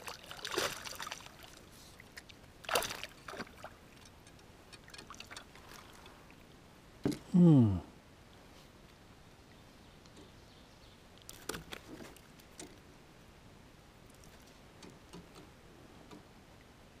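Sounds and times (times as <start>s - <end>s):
faint ticks: 3.9s - 6.2s.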